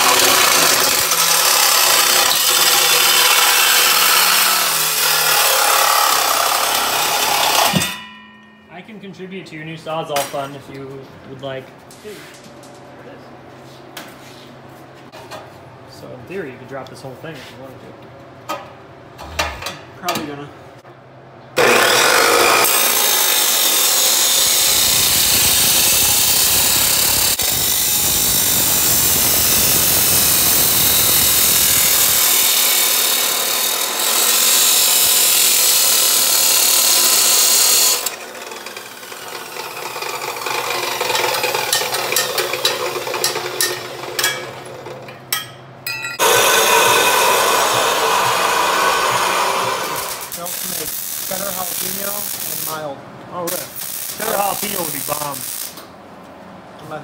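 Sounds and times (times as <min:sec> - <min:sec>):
cut-off saw grinding metal: 0:00.0 - 0:08.2, 0:21.6 - 0:44.7, 0:45.4 - 0:52.8.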